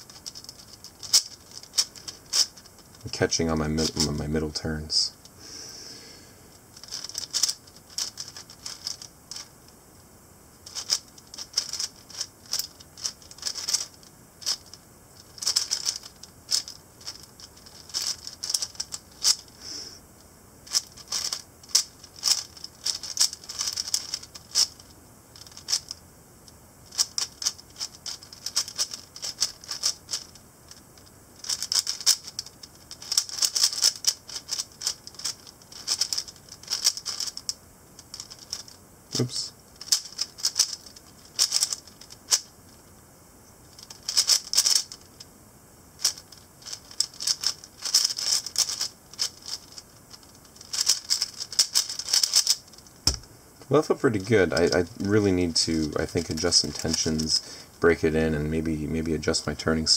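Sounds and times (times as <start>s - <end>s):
puzzle cube plastic clicking: 0.0s - 3.0s, 6.8s - 9.5s, 10.6s - 19.5s, 20.7s - 26.0s, 26.9s - 38.8s, 39.8s - 42.5s, 43.8s - 45.1s, 46.0s - 53.2s, 54.4s - 55.2s, 55.9s - 57.4s.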